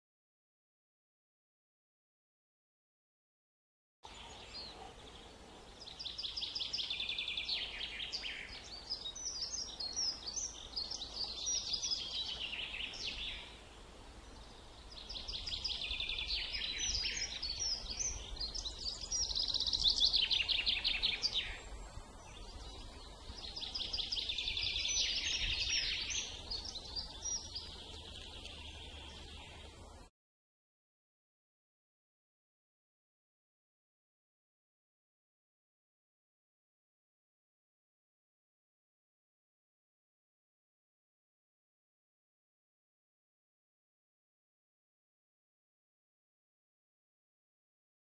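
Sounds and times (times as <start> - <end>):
songbird trilling and twittering: 4.1 - 13.6, 14.2 - 29.9.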